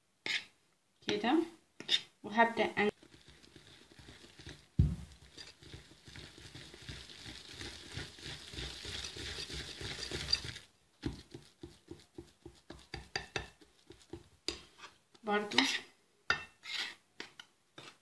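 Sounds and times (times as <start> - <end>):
whisk scraping batter in bowl: 2.9 - 18.0
whisk tapping against bowl: 3.0 - 14.7
thump: 4.8 - 5.1.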